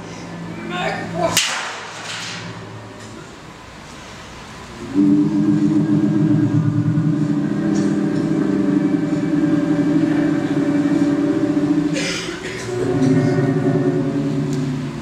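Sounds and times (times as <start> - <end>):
low rough droning tone: 4.6 - 15.0.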